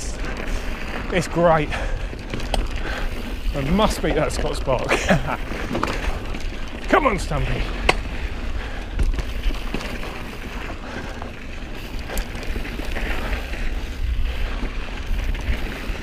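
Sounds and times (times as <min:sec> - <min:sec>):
tyres rushing on dirt: 0:00.0 - 0:16.0
bike clicks and knocks: 0:02.0 - 0:13.8.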